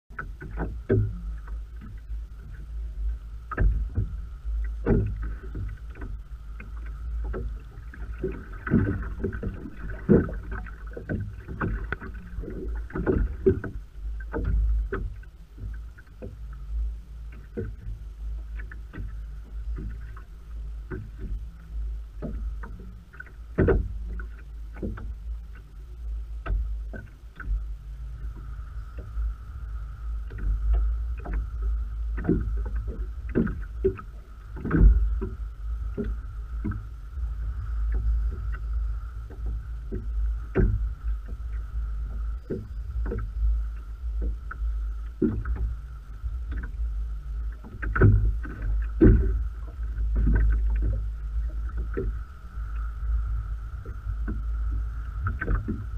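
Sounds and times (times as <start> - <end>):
knocks on boat: 0.1 - 2.0, 3.5 - 4.2, 4.8 - 16.4, 22.2 - 25.2, 32.1 - 36.9, 39.3 - 41.5, 45.1 - 45.7, 47.6 - 52.2, 55.2 - 55.9
faint steady whine: 0.1 - 55.9
steady low rumble: 0.1 - 55.9
water slapping against boat hull: 0.1 - 55.9.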